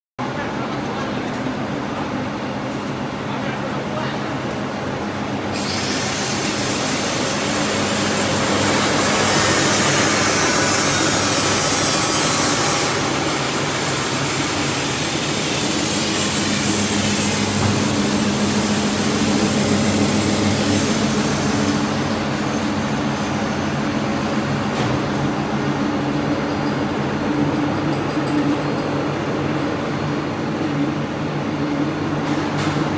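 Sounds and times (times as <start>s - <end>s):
printing press running: 0.6s - 27.5s.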